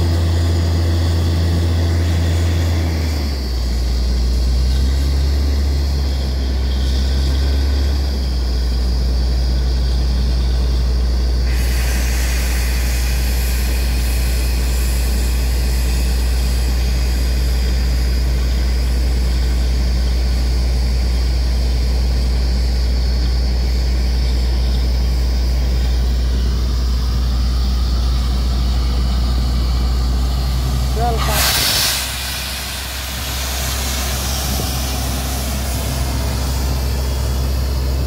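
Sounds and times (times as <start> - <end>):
drilling rig deep drone: 0.0 - 38.0
air hiss: 11.4 - 21.1, 25.6 - 38.0.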